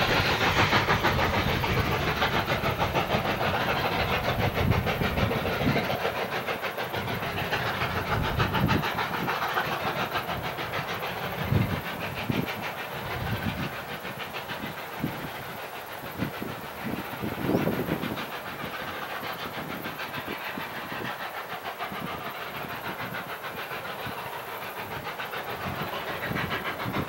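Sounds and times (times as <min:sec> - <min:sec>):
distant steam locomotive chuffing: 0:00.0 - 0:27.0
wind rumbling on microphone: 0:16.2 - 0:18.3.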